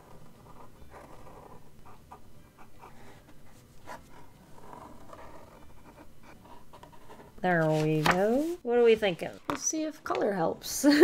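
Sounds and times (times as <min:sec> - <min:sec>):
pen scratching on paper: 0:00.0 - 0:07.8.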